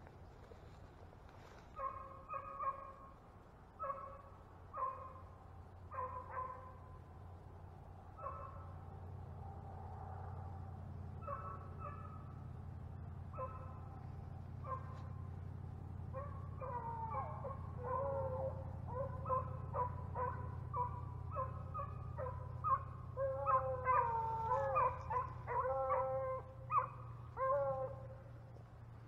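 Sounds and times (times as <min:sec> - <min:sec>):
dogs baying and howling: 0:01.7 - 0:03.0, 0:03.8 - 0:05.2, 0:05.9 - 0:06.8, 0:08.2 - 0:08.8, 0:11.1 - 0:12.4, 0:13.3 - 0:28.6.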